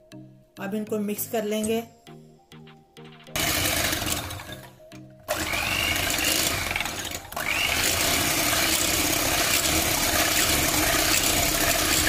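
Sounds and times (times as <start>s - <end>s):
electric hand mixer whisking: 3.4s - 4.7s, 5.3s - 12.0s.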